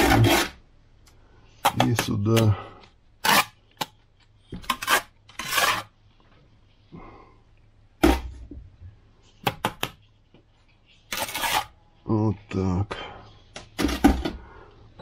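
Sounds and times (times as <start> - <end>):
trowel clinking and scraping brick: 4.6 - 5.9, 11.1 - 11.8.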